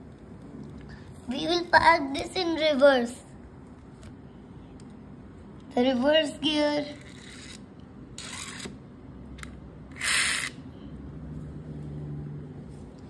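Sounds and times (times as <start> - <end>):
faint steady hum: 0.0 - 13.0
toy car swishing across floor: 10.0 - 10.6.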